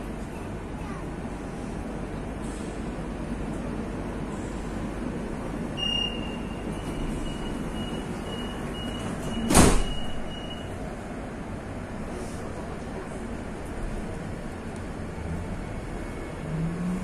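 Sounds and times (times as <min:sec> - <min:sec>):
train running hum: 0:00.0 - 0:17.0
high electronic warning beep: 0:05.8 - 0:10.7
sliding doors banging shut: 0:08.9 - 0:10.4.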